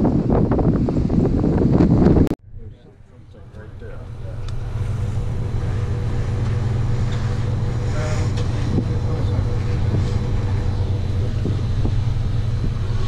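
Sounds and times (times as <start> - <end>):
ship engines droning: 0.0 - 13.0.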